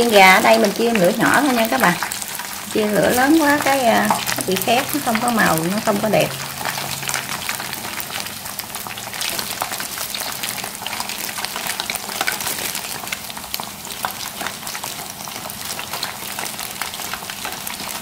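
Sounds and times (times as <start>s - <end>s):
chicken deep-frying in oil: 0.0s - 18.0s.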